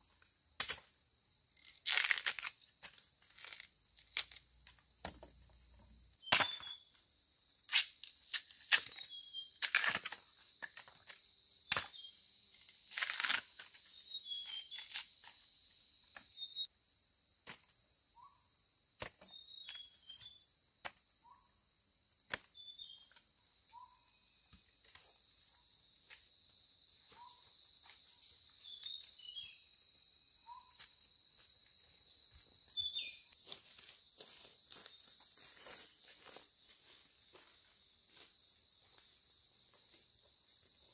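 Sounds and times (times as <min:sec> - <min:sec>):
crickets and insects chirping: 0:00.0 - 0:40.9
plant material snapping and tearing: 0:01.6 - 0:02.6.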